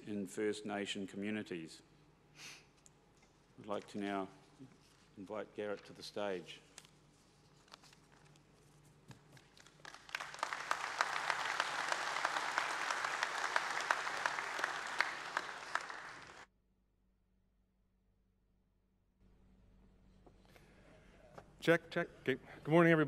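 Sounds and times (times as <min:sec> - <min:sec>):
audience applauding: 0:09.6 - 0:16.5.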